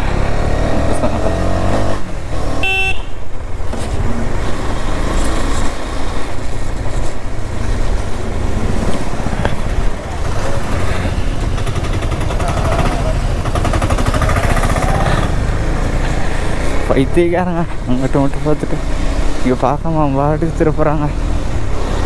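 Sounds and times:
road rumble: 0.0s - 22.0s
wind: 0.0s - 22.0s
vehicle horn toot: 2.6s - 3.3s
motorcycle engine running: 6.2s - 19.1s.

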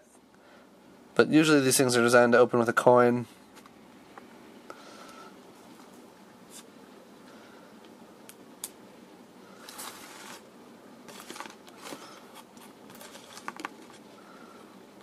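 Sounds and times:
paper crinkling and rustling: 9.6s - 10.4s, 11.1s - 14.1s.

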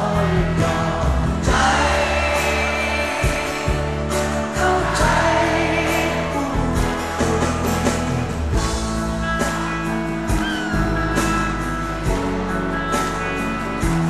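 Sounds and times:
voices singing: 0.0s - 7.1s
live pop band playing: 0.0s - 14.0s.

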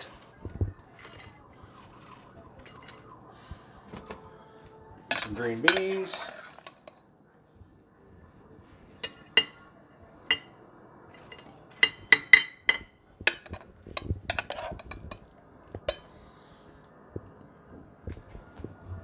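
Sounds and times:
spoon clinking on saucepan and plate: 5.1s - 7.0s, 9.0s - 16.2s.

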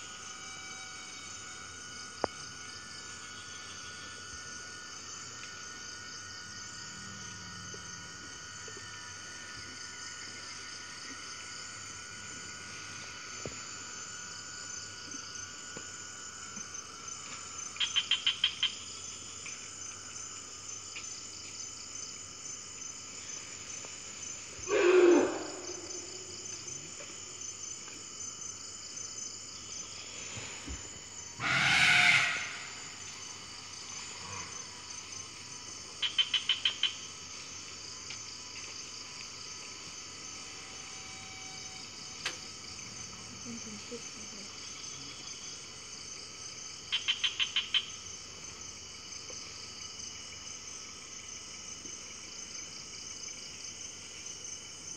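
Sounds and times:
crickets and cicadas chorus: 0.0s - 54.9s
elephant trumpet call: 24.7s - 26.4s, 31.4s - 32.9s.

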